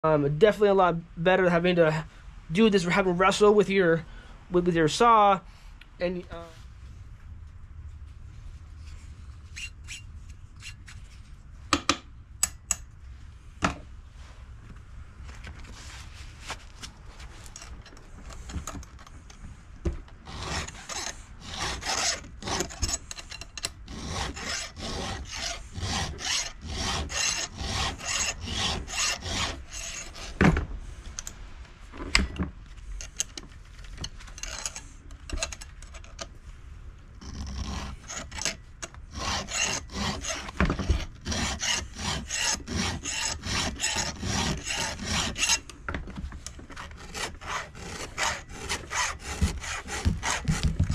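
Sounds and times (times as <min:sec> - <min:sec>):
file rasping on chainsaw chain: 0:20.2 - 0:30.4, 0:34.4 - 0:35.6, 0:37.2 - 0:45.7, 0:46.8 - 0:50.9.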